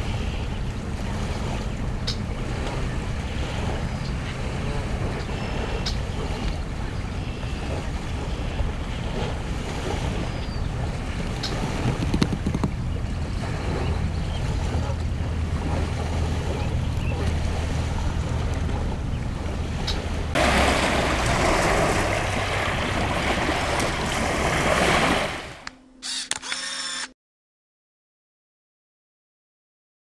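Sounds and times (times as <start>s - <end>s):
wind rumbling on microphone: 0.0s - 25.6s
waves washing onto pebbles: 20.3s - 25.6s.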